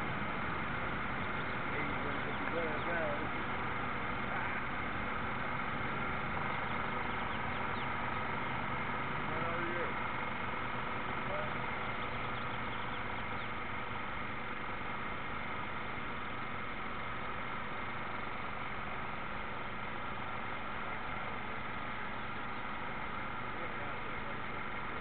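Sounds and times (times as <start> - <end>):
model boat motor humming: 0.0 - 25.0.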